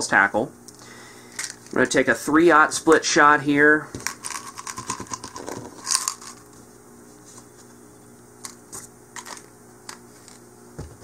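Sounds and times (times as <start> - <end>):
split shot rattling in plastic container: 4.0 - 6.4.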